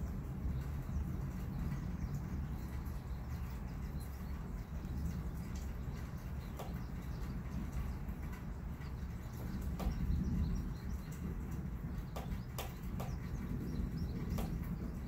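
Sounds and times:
low storm rumble: 0.0s - 15.0s
sharp ticks: 5.5s - 10.2s, 12.0s - 13.5s, 14.2s - 14.8s.

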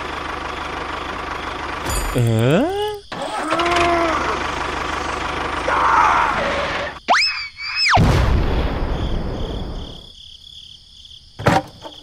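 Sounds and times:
rumbling boom: 8.0s - 9.9s.

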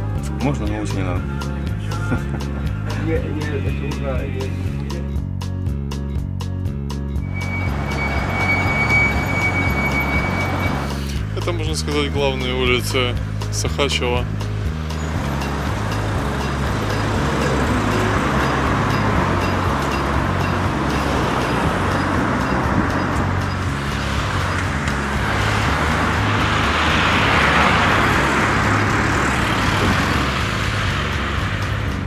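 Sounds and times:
background music bass line: 0.0s - 32.0s
cars passing: 7.2s - 32.0s.

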